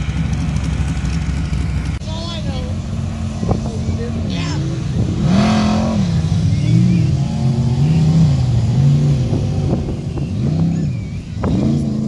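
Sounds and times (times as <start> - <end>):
engine revving: 2.6 - 12.0.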